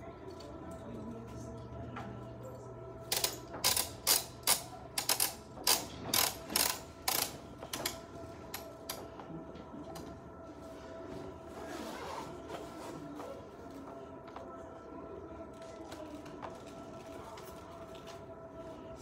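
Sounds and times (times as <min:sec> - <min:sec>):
ratchet clicks: 0:03.1 - 0:08.0.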